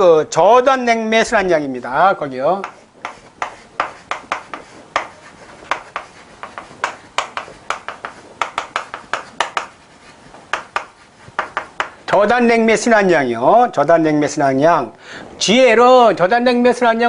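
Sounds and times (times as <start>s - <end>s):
chalk writing on blackboard: 1.8s - 12.1s.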